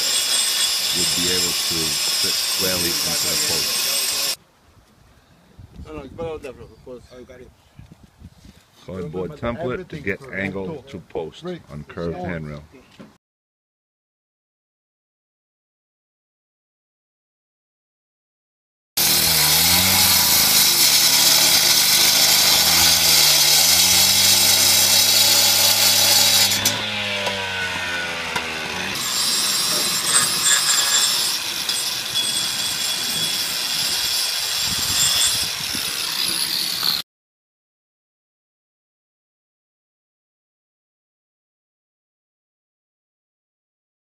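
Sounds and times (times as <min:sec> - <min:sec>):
angle grinder cutting stone: 0:00.0 - 0:04.4, 0:19.0 - 0:37.0.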